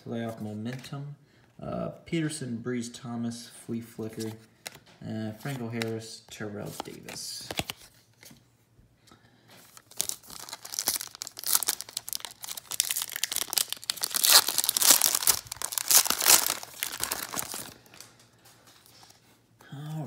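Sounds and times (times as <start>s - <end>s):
foil wrapper crinkling and tearing: 9.7s - 19.0s.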